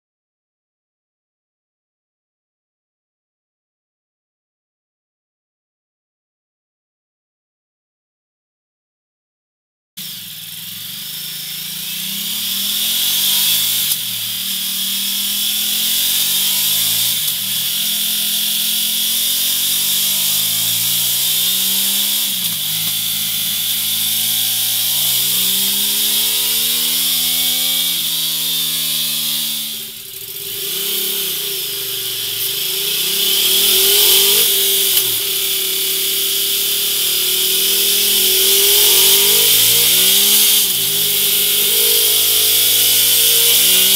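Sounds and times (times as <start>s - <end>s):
motorcycle engine revving: 10.0s - 43.9s.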